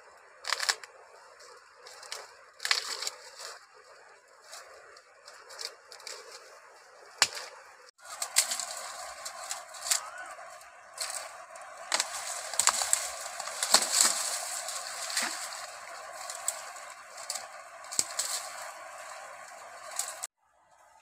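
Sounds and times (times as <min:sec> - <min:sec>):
leaves rustling: 0:00.0 - 0:20.3
steady background hiss: 0:00.0 - 0:20.3
sticks cracking and snapping: 0:00.4 - 0:01.0, 0:01.8 - 0:03.6, 0:07.2 - 0:20.3.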